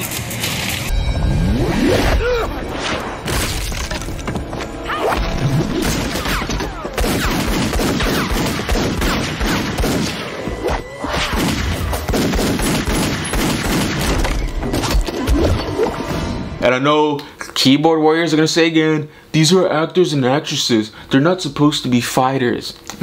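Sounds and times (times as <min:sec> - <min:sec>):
gunshots: 0:05.6 - 0:15.6.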